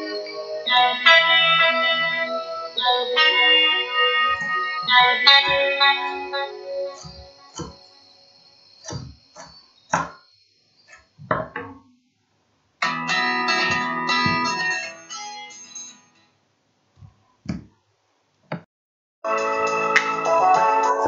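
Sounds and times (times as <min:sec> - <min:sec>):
guitar music: 0:00.0 - 0:08.0, 0:12.8 - 0:16.2
knife chopping on wooden board: 0:07.0 - 0:07.8, 0:08.9 - 0:10.2.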